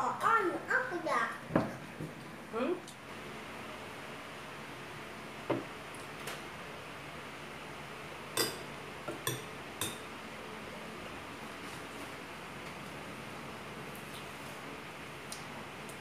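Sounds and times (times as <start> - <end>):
metal spoon clinking glass bowl: 8.4 - 8.6.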